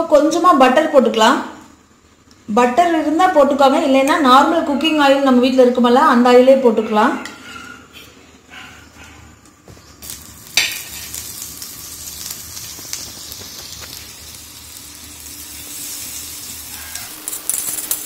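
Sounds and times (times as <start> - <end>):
butter sizzling in a hot pan: 10.0 - 18.0.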